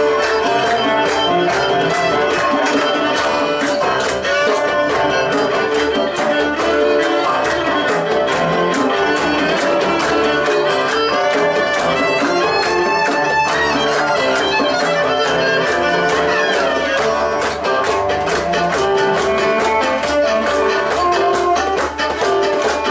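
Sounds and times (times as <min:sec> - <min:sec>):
drum kit beat: 0:00.0 - 0:22.9
fiddle playing lead: 0:00.0 - 0:22.9
hand drum beat: 0:00.0 - 0:22.9
strummed acoustic guitar: 0:00.0 - 0:22.9.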